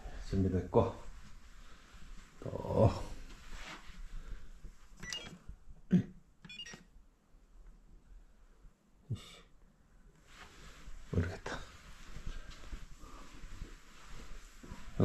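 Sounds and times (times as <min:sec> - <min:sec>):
short electronic beeps: 0:05.0 - 0:05.3, 0:06.5 - 0:06.8.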